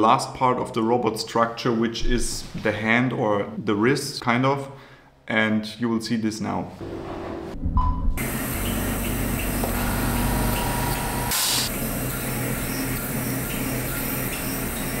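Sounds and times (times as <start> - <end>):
cnc router milling metal: 8.2 - 15.0
machining hiss: 8.2 - 15.0.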